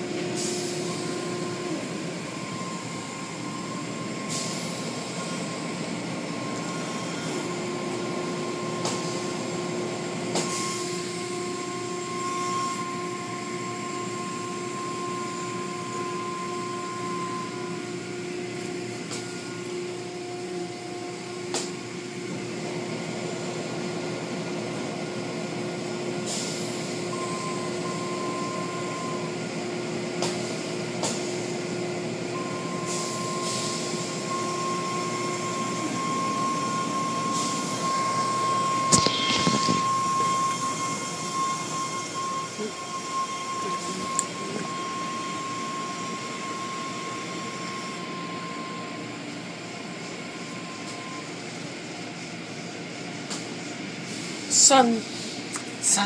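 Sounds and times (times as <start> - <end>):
car wash machinery drone: 0.0 - 56.0
high whine: 34.6 - 48.8.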